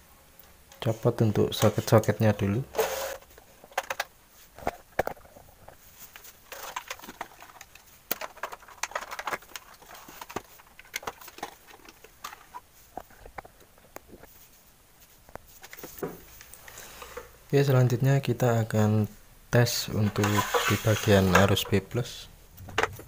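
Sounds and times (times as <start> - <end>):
wiring rustling: 2.8 - 17.2, 19.8 - 23.0.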